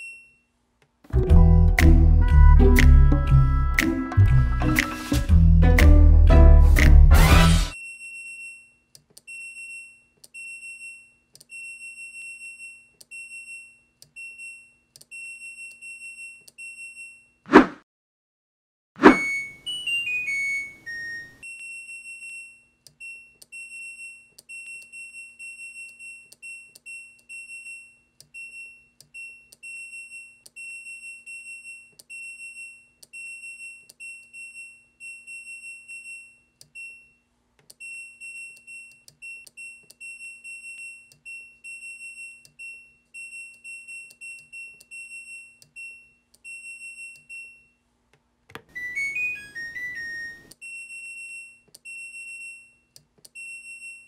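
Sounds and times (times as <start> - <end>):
washing machine beeps: 0.0 - 0.4, 19.0 - 37.2, 37.8 - 47.8, 48.7 - 54.0.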